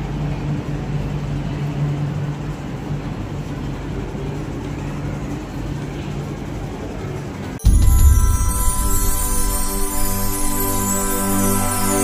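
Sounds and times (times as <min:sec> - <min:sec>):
steady low hum: 0:00.0 - 0:12.0
train running rumble: 0:00.0 - 0:12.0.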